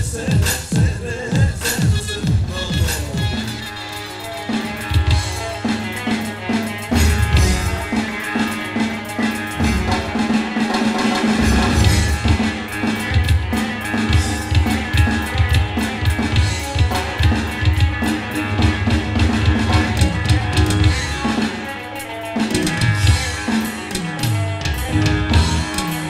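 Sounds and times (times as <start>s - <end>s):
drum kit beat: 0.0s - 26.0s
electric guitar: 0.0s - 26.0s.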